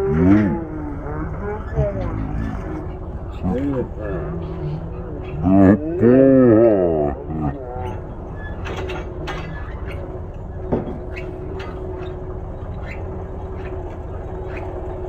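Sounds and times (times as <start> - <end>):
tractor engine droning: 0.0 - 15.0.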